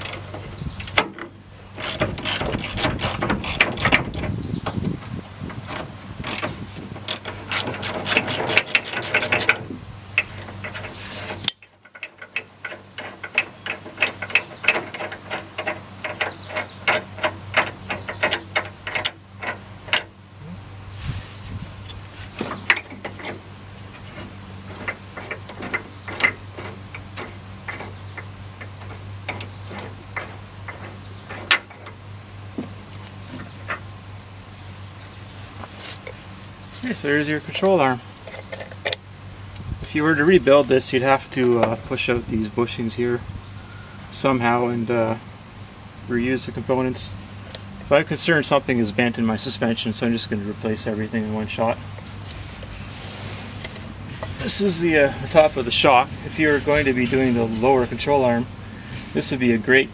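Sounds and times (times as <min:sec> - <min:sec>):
hand ratchet clicking: 0:01.8 - 0:04.4, 0:06.2 - 0:06.5, 0:07.1 - 0:09.6.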